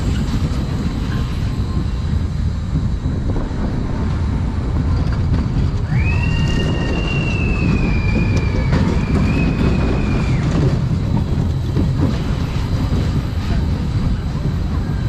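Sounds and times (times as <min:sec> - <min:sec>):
high steady squeal: 0:00.0 - 0:11.2
roller coaster rattling rumble: 0:00.0 - 0:15.0.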